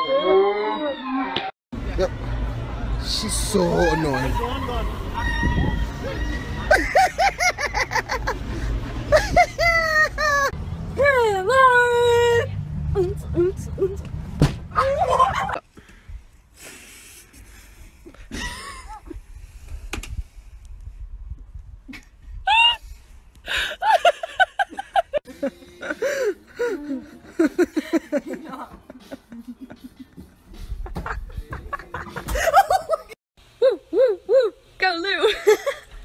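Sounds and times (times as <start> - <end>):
person laughing hard: 6.7 - 10.5, 18.3 - 19.2, 30.8 - 34.3.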